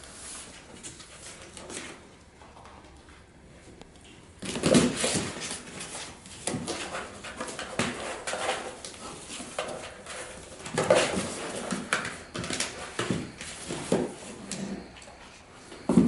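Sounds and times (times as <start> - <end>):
paws scratching cardboard box: 4.4 - 14.9.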